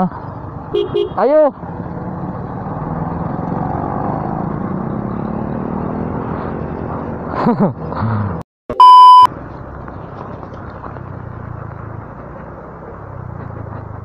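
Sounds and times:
tyre and road noise: 0.0s - 14.0s
loud test-tone beep: 8.7s - 9.3s.

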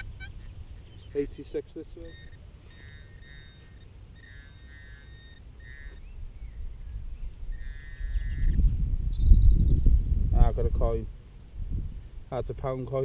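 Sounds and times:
low wind rumble: 0.0s - 12.9s
pinpointer high buzzing tone: 1.3s - 6.1s.

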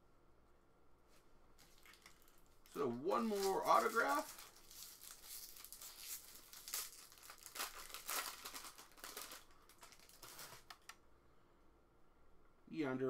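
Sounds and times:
foil wrapper tearing and crinkling: 1.6s - 10.9s.

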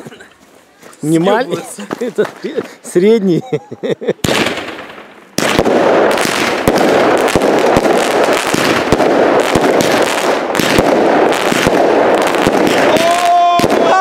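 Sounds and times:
firework burst: 4.2s - 14.0s
firework crackling stars: 4.2s - 14.0s.

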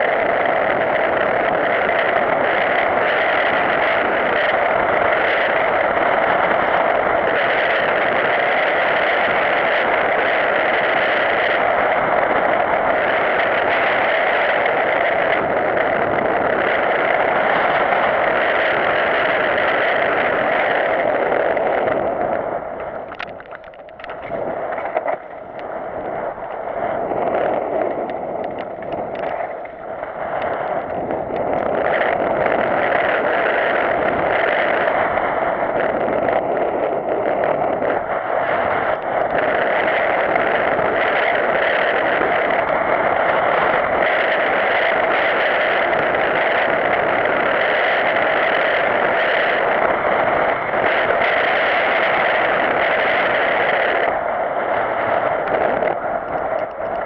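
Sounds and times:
bike rattling on trail: 0.0s - 57.0s
muffled wind rush: 0.0s - 57.0s.

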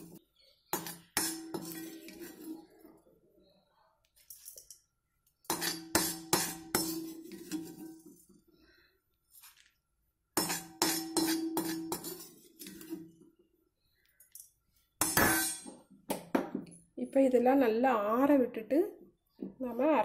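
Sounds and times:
metal utensils knocking on iron pan: 5.5s - 7.8s, 10.4s - 12.3s, 15.0s - 16.6s.

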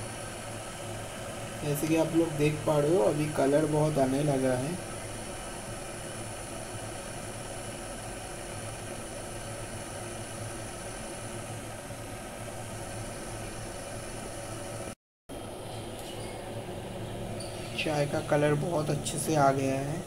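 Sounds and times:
kettle water bubbling: 0.0s - 15.0s.

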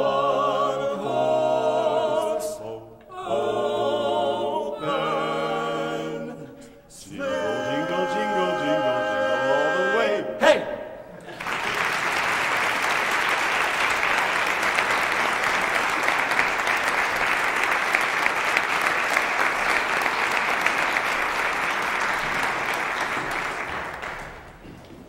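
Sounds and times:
audience applauding: 11.2s - 25.0s.

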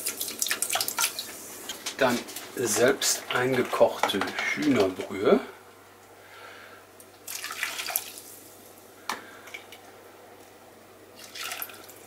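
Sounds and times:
liquid pouring and splashing: 0.0s - 1.4s, 7.2s - 8.4s, 11.2s - 12.0s.

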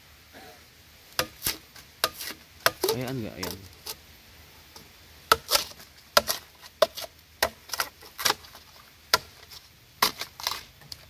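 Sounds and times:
machete chopping bamboo: 1.2s - 3.8s, 5.3s - 11.0s.

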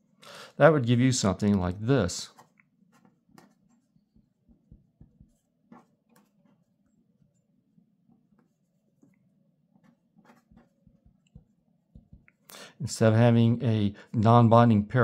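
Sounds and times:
pen scratching on paper: 2.3s - 7.5s, 8.1s - 12.2s
pen tapping on paper: 2.4s - 6.7s, 9.8s - 12.3s.

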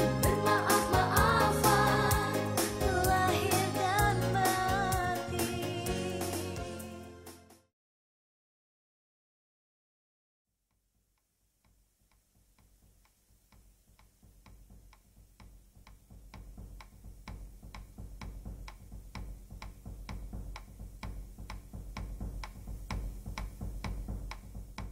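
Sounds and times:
low throb: 0.0s - 7.1s
clock-like ticking: 12.1s - 24.9s.

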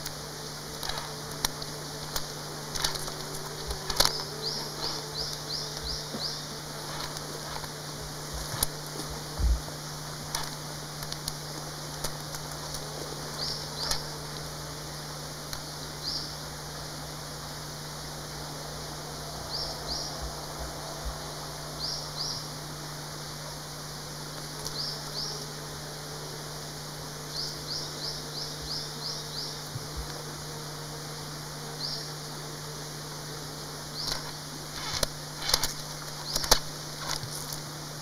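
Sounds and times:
low hum and hiss: 0.0s - 38.0s
bird chirping: 3.9s - 7.2s, 13.4s - 14.0s, 15.6s - 16.4s, 19.4s - 22.5s, 24.6s - 25.4s, 27.3s - 29.7s.

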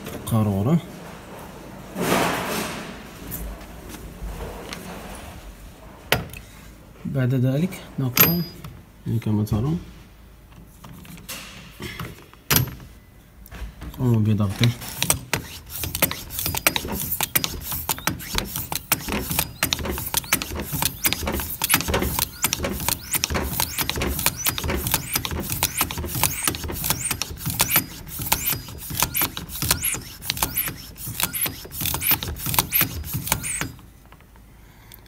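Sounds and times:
hand pump clicking strokes: 15.0s - 33.8s.

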